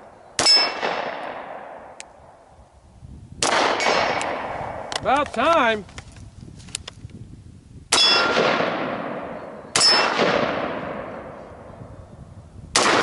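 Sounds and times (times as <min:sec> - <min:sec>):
metallic ring of steel target: 0:00.4 - 0:01.2, 0:08.0 - 0:11.1
rifle gunshots: 0:00.4 - 0:01.9, 0:03.4 - 0:04.9, 0:07.9 - 0:11.4, 0:12.7 - 0:13.0.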